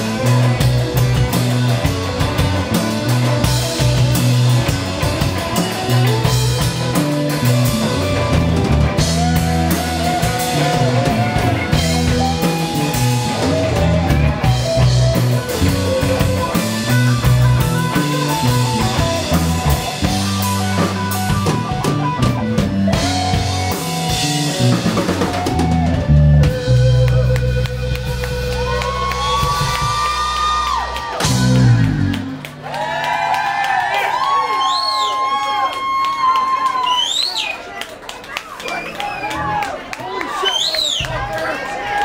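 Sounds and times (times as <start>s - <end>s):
bass beat: 0.0s - 32.6s
electric guitar bending notes: 0.0s - 32.6s
drum kit: 0.0s - 34.3s.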